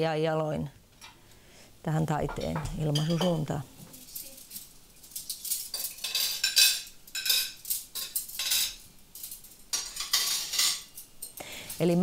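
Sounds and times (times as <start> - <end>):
crockery and cutlery clinking: 2.2 - 12.0.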